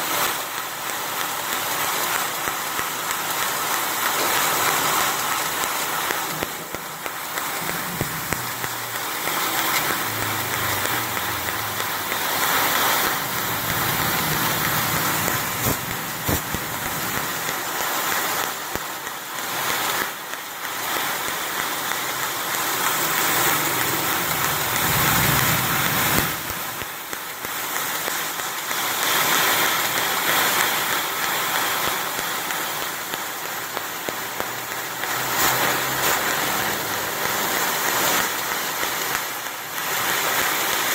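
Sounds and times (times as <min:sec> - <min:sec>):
hiss of assist gas: 0:00.0 - 0:40.9.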